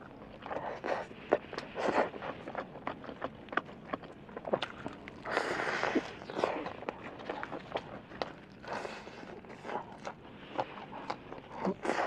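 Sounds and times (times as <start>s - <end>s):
crunching and chewing fried chicken: 0.0s - 12.0s.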